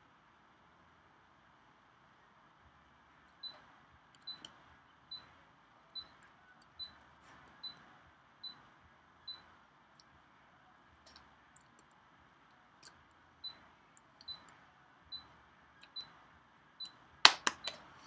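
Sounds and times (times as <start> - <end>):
soft clicks: 3.3 - 5.4, 11.0 - 16.2
faint high-pitched beep: 3.4 - 9.6, 13.4 - 16.2.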